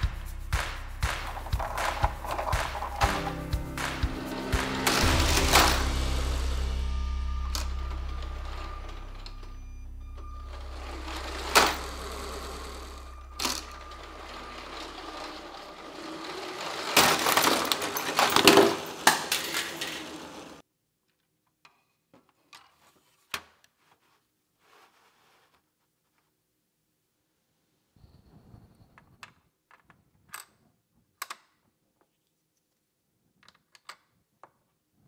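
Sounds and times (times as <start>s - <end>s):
toy train motor humming: 10.7s - 20.6s
wheels clicking on track: 10.7s - 20.6s.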